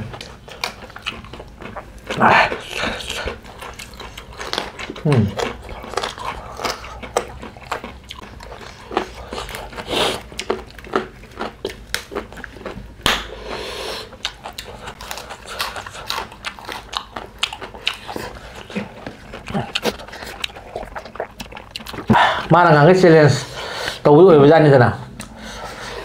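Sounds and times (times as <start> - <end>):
people chewing and lip smacking: 0.0 - 22.6, 25.0 - 26.0.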